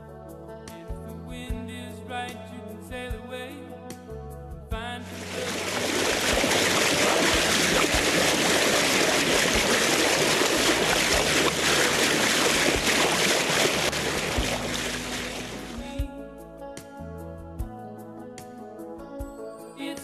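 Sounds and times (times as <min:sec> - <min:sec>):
rushing water: 0:05.1 - 0:16.0.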